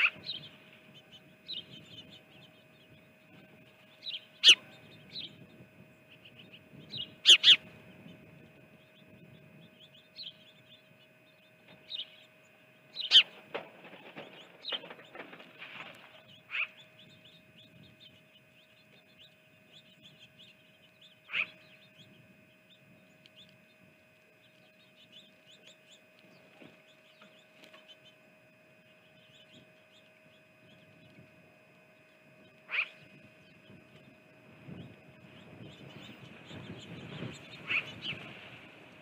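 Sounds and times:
faint steady hum: 0.0s - 39.0s
small birds chirping: 0.0s - 39.0s
short bird calls: 4.0s - 5.4s, 6.2s - 7.8s, 11.8s - 13.5s, 14.1s - 18.0s, 19.8s - 22.1s, 32.5s - 33.7s, 36.1s - 38.4s.

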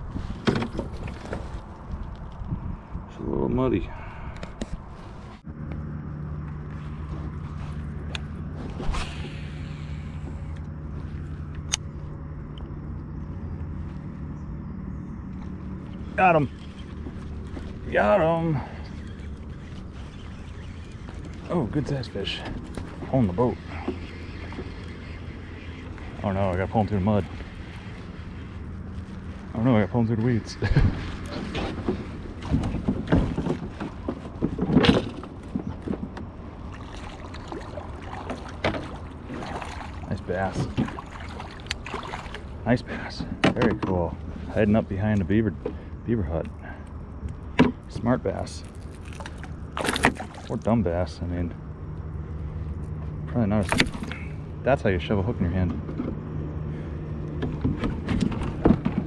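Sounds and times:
steady low hum: 0.0s - 59.0s
brief swish: 8.7s - 9.6s
fish splashing in water: 36.6s - 42.7s, 48.6s - 50.6s.

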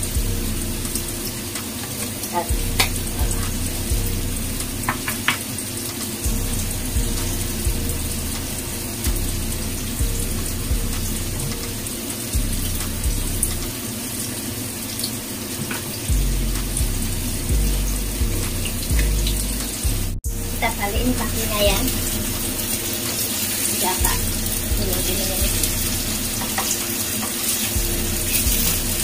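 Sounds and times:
tofu sizzling in hot oil: 0.0s - 29.0s
steady low hum: 6.2s - 13.7s, 16.1s - 22.8s, 27.8s - 29.0s.

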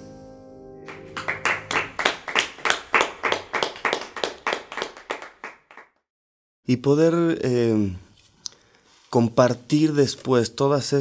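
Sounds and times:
hands clapping: 0.9s - 6.0s.

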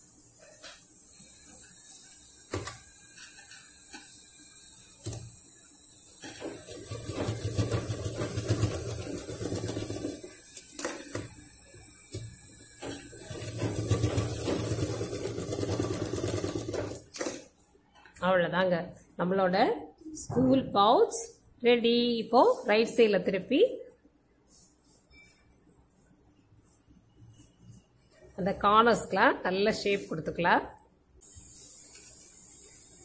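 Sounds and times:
sewing machine stitching: 6.2s - 17.5s.

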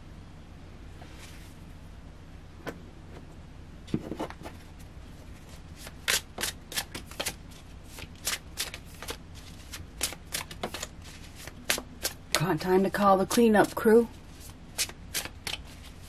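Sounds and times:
cards shuffling with clicks and slaps: 3.9s - 12.5s, 13.3s - 16.0s.

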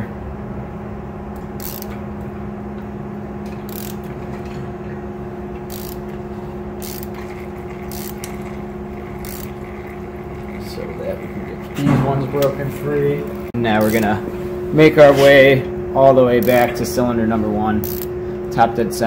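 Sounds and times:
steady hum: 0.0s - 19.0s
ratchet wrench rasping: 1.6s - 2.0s, 3.6s - 4.1s, 5.6s - 6.2s, 6.8s - 11.6s, 13.2s - 14.2s, 16.4s - 16.8s, 17.8s - 18.1s.

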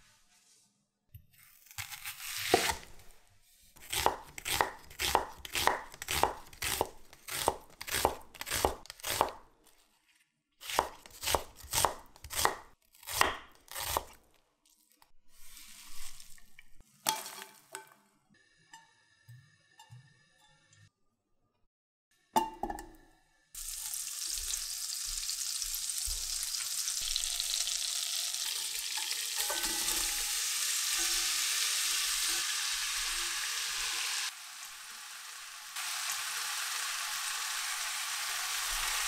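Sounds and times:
knife slicing onions on wooden board: 1.6s - 3.1s, 3.8s - 9.4s, 10.6s - 14.2s.

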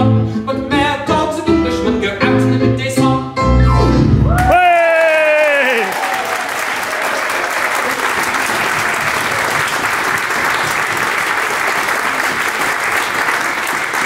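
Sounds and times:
audience applauding: 4.3s - 14.0s.

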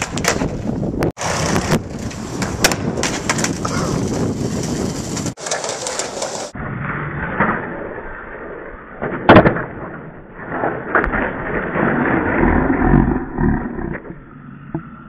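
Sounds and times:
skateboard clacking on ground: 0.0s - 6.5s
skater falling on paving: 0.0s - 6.5s
skateboard wheels rolling on stone: 0.0s - 6.6s, 10.9s - 14.1s
skateboard scraping and rumbling: 0.0s - 15.0s.

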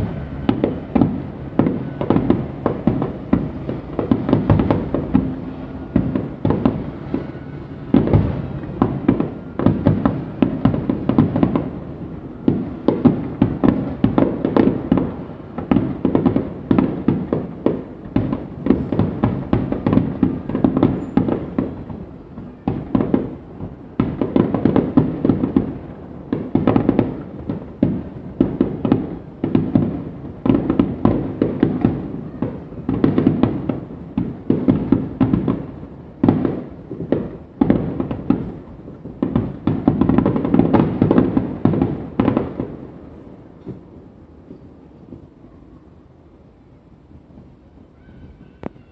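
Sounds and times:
firework shells bursting: 0.0s - 22.1s
fireworks crackling: 0.0s - 48.9s.

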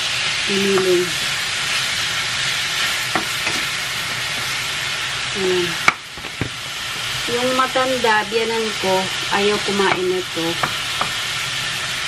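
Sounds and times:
meat sizzling in a frying pan: 0.0s - 12.0s
wooden spatula knocking pan: 3.1s - 4.5s.

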